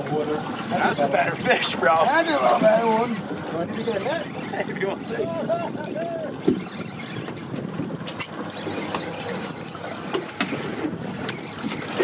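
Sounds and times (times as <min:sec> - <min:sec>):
water against boat hull: 0:00.0 - 0:12.0
wind on microphone: 0:04.0 - 0:09.7.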